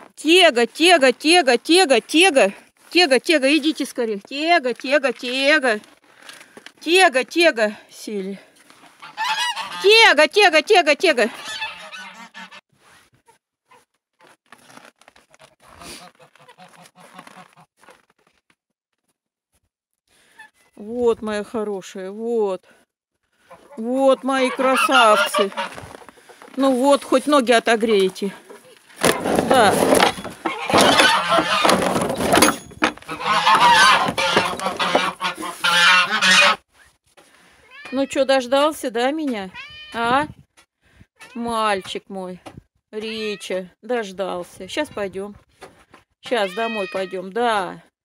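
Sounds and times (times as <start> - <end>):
geese calling: 8.9 - 10.1, 11.2 - 12.6, 23.4 - 26.5, 30.4 - 31.8, 33.0 - 36.6
footsteps crunching on snow: 14.2 - 18.0, 25.5 - 27.4.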